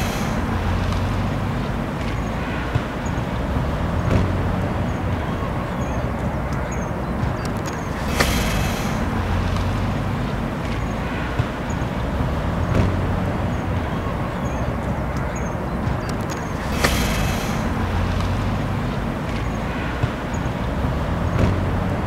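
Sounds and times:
bus driving by: 0.0s - 22.0s
car passing: 0.0s - 22.0s
road noise: 0.0s - 22.0s
short hiss: 7.7s - 11.4s.

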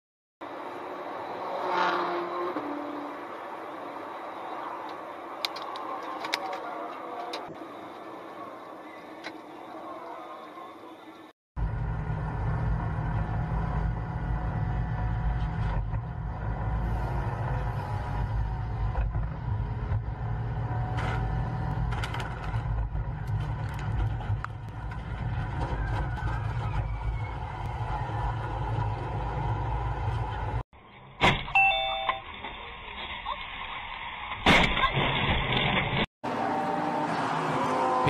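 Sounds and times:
vehicle rumble from inside: 11.6s - 31.0s.

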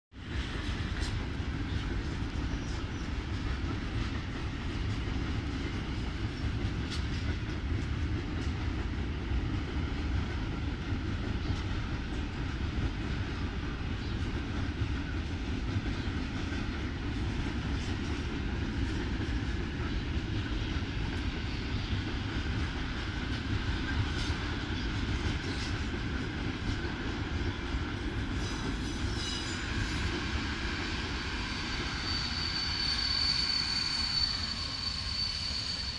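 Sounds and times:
train wheels rumbling on rails: 0.1s - 35.9s
faint high wheel squeals: 28.4s - 35.9s.

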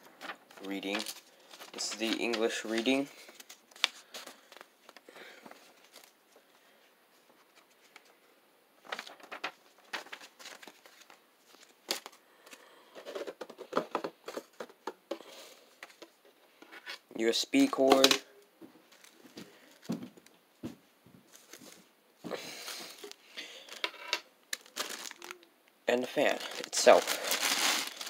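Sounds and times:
plastic bag crinkling: 0.2s - 4.6s, 24.5s - 28.0s.

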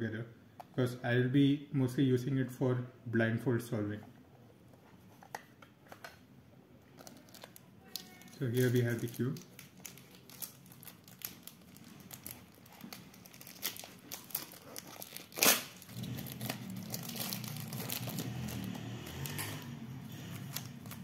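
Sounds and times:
packaging crinkling: 7.0s - 21.0s.

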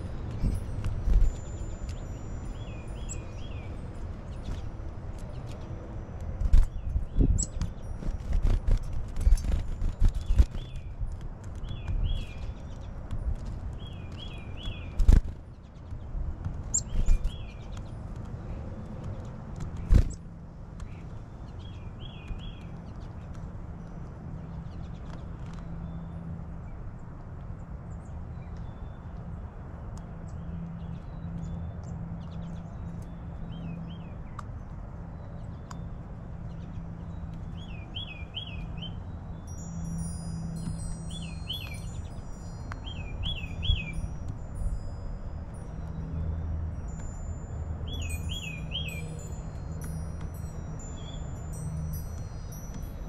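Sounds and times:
wind chimes ringing: 0.0s - 4.5s, 37.6s - 53.0s
songbirds chirping: 0.0s - 53.0s.

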